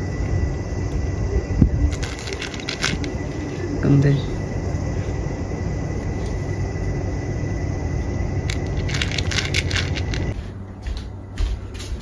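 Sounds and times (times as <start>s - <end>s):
steady low rumble: 0.0s - 12.0s
kitten crunching dry kibble: 1.9s - 3.7s, 8.4s - 10.4s.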